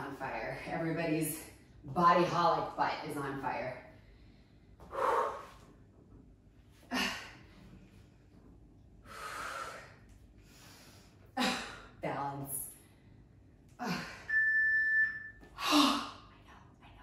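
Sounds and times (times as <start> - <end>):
woman breathing hard: 4.0 - 5.7, 9.0 - 12.0.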